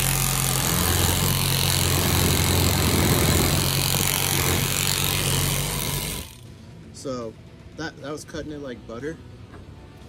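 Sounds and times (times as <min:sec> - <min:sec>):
reciprocating saw cutting: 0:00.0 - 0:06.4.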